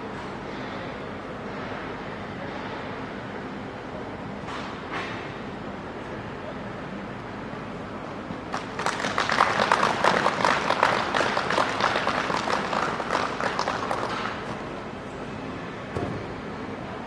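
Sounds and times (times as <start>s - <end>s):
group of people applauding: 8.5s - 14.6s.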